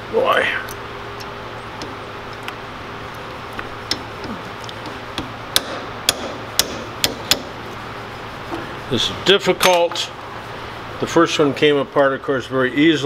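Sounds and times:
hammer striking metal punch: 3.6s - 7.6s.

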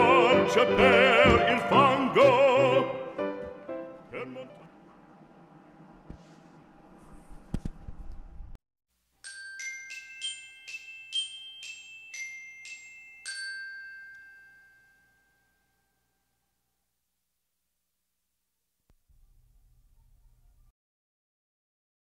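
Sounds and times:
glockenspiel jingle: 9.2s - 16.5s.

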